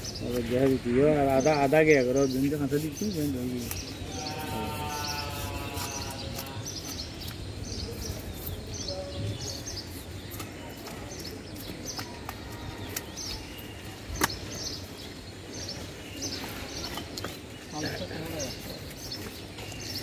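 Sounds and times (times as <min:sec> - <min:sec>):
market background noise: 0:00.0 - 0:20.0
knife scraping fish scales: 0:01.6 - 0:07.3.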